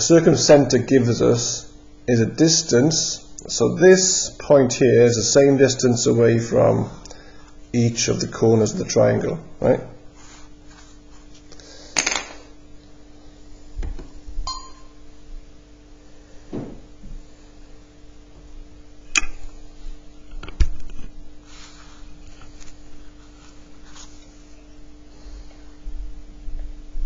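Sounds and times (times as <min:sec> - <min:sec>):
faint hum: 0:00.0 - 0:27.0
objects knocking on desk: 0:16.5 - 0:16.8.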